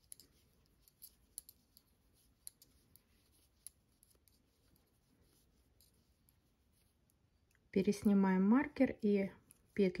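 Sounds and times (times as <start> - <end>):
knitting needles clicking: 0.0 - 4.9.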